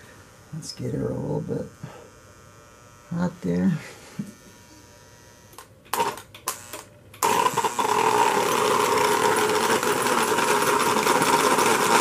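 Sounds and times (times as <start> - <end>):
model train motor running: 7.2 - 12.0.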